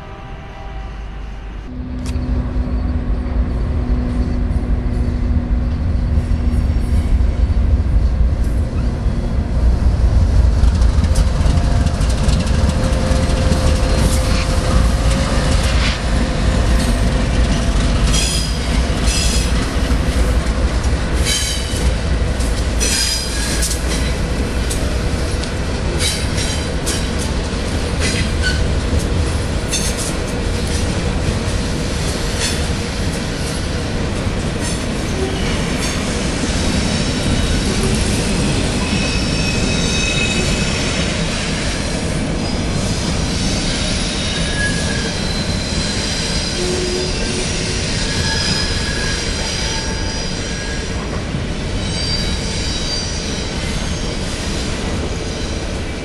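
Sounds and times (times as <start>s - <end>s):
freight train engine rumble: 0.0s - 56.0s
train wheels squealing: 11.1s - 19.7s, 22.8s - 24.2s, 28.0s - 28.8s, 34.6s - 55.9s.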